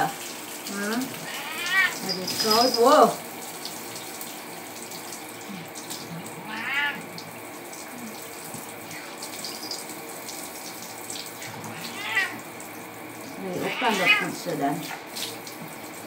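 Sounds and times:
shower spray running: 0:00.0 - 0:16.0
cat meowing: 0:01.2 - 0:02.0, 0:06.4 - 0:07.1, 0:11.4 - 0:12.4, 0:13.5 - 0:14.4.

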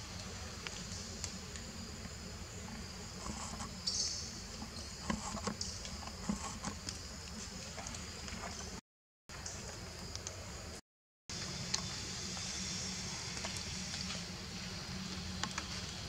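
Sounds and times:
high-pitched insect chorus: 0:00.7 - 0:08.6, 0:11.4 - 0:16.0.

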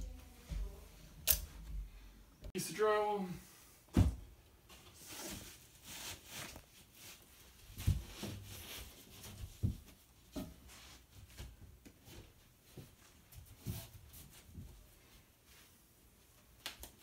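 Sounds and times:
drywall scraping and rustling: 0:04.0 - 0:15.6.

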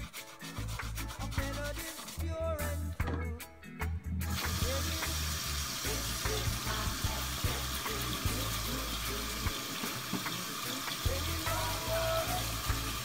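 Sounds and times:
toothbrush scrubbing shoe sole: 0:00.0 - 0:02.3, 0:04.3 - 0:13.0
faucet running into sink: 0:04.3 - 0:13.0.

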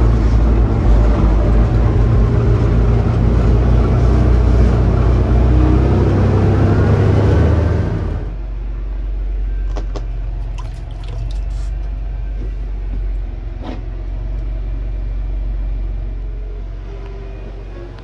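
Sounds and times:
low engine hum: 0:00.0 - 0:18.0.

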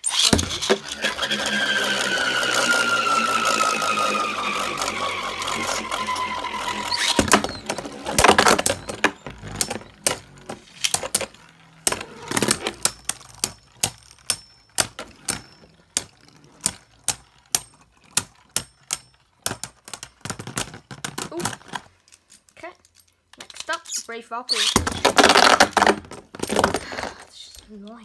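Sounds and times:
spinning tops clicking and clashing: 0:00.0 - 0:20.2.

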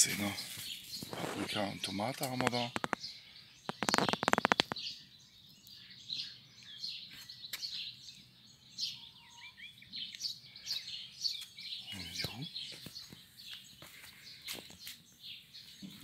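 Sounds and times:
small birds chirping: 0:00.0 - 0:16.0
loud sharp clicks: 0:02.2 - 0:03.1, 0:03.7 - 0:04.8.

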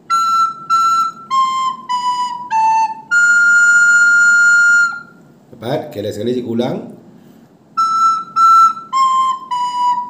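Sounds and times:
recorder playing single notes: 0:00.0 - 0:05.2, 0:07.8 - 0:10.0.

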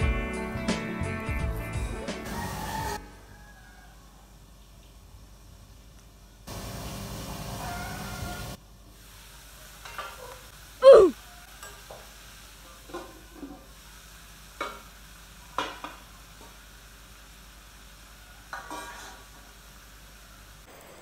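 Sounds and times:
food sizzling faintly: 0:06.5 - 0:20.8
loud short cry: 0:10.8 - 0:11.2
clinks against pan: 0:18.5 - 0:19.2.

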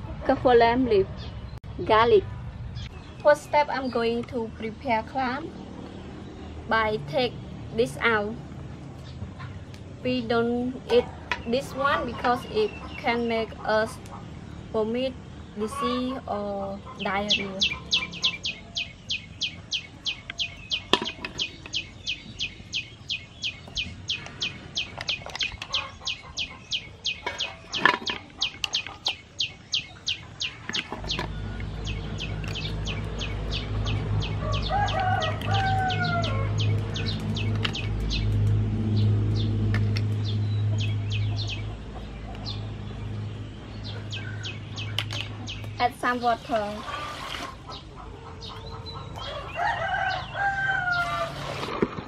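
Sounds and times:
bird chirping: 0:09.0 - 0:51.4
rooster crowing: 0:34.3 - 0:36.6, 0:48.4 - 0:51.5.

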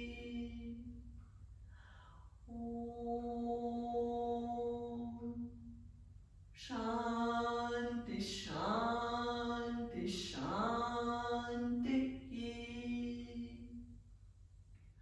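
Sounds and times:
woman chanting: 0:00.0 - 0:01.0, 0:02.5 - 0:05.6, 0:06.6 - 0:13.8.

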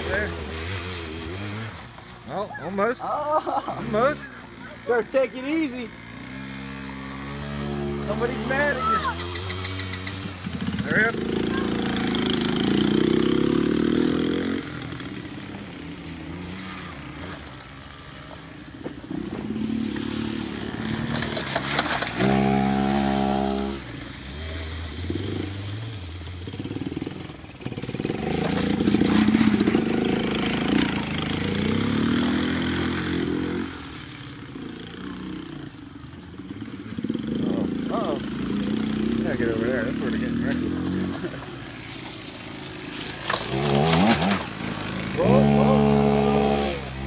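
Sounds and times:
quad engine revving: 0:00.0 - 0:35.8, 0:36.4 - 0:47.0.

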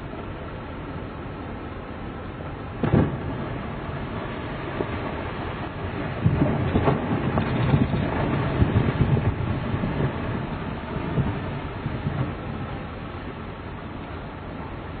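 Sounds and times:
ice rumbling: 0:02.8 - 0:13.4.

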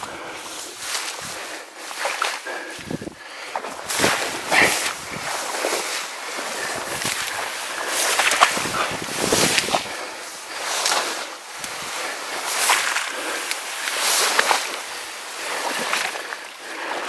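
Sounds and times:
footsteps through wet grass: 0:00.0 - 0:17.0
stems swishing against clothing: 0:03.6 - 0:15.0.

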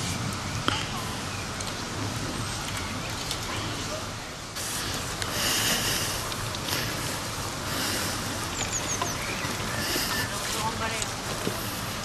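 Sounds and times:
steady rushing hiss: 0:00.0 - 0:12.0
small bird chirping: 0:08.4 - 0:10.6.

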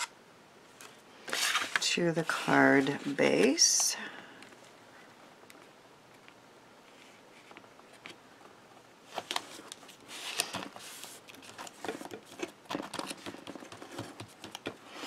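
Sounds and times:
paper rustling and tapping: 0:09.2 - 0:14.8.

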